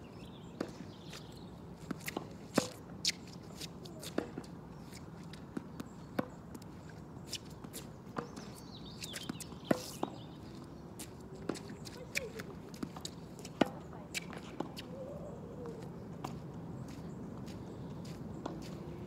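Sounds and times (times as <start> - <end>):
tennis ball struck and bouncing: 1.8 - 3.2, 8.1 - 10.2.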